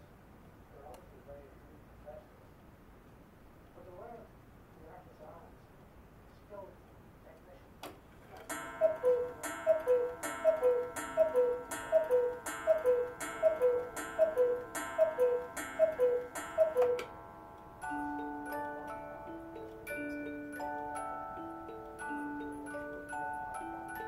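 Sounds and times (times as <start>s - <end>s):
clock click: 8.4s - 17.2s
two-note cuckoo call: 8.5s - 17.2s
ringing clock strike: 8.5s - 24.0s.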